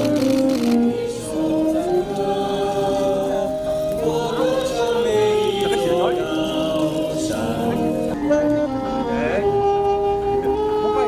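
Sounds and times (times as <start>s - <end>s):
group singing: 0.0s - 8.4s
music: 0.0s - 11.0s.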